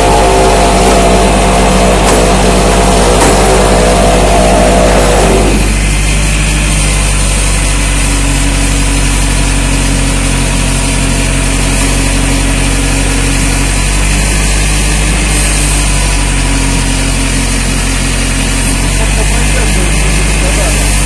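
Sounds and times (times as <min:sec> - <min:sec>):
truck engine running: 0:00.0 - 0:21.0.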